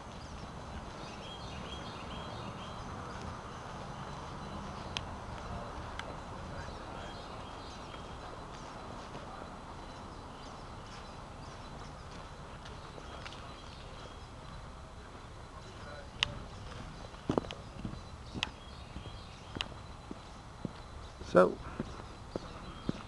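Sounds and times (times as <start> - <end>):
songbirds chirping: 0.0 - 23.0
footsteps on damp ground and leaves: 7.2 - 23.0.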